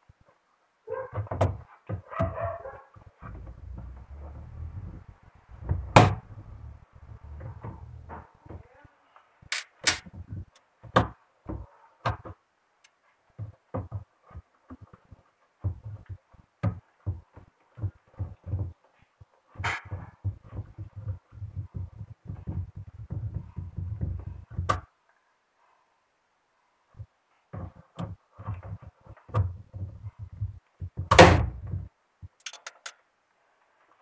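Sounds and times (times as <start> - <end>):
low handling rumble: 3.2 - 8.4.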